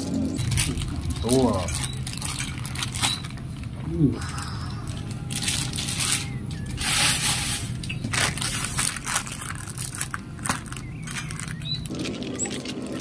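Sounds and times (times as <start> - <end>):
plastic bag crinkling: 0.1 - 13.0.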